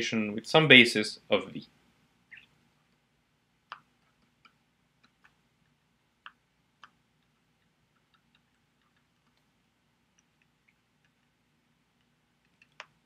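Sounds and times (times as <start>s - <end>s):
stylus tapping on tablet screen: 3.7s - 9.5s, 12.0s - 13.0s.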